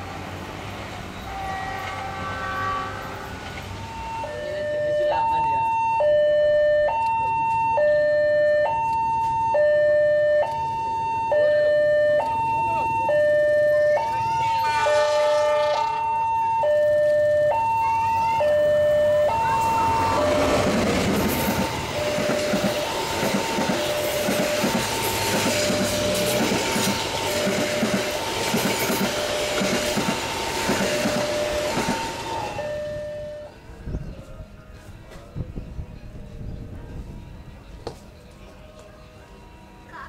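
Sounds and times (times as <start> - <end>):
train carriages rushing past: 0.0 - 5.8, 12.1 - 39.9
train horn blast: 1.2 - 3.4, 14.3 - 16.1
two-tone level-crossing alarm: 3.8 - 33.6
wheels clacking over rail joints: 18.4 - 32.8.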